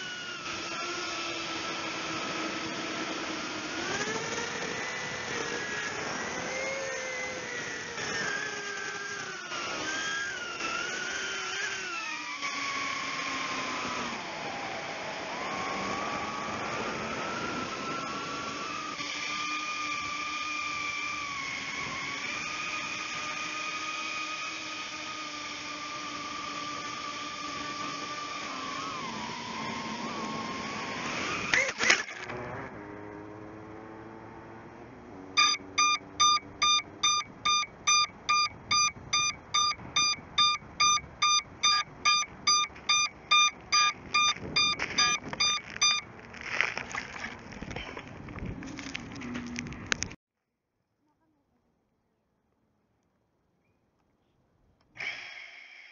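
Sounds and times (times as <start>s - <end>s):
drone motors whining: 0.0s - 50.2s
buzzer beeping: 35.4s - 46.1s
handling noise: 41.1s - 50.2s.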